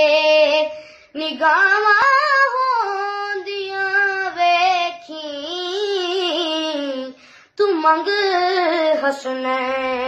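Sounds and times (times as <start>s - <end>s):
breath: 0.8s - 1.2s, 7.2s - 7.6s.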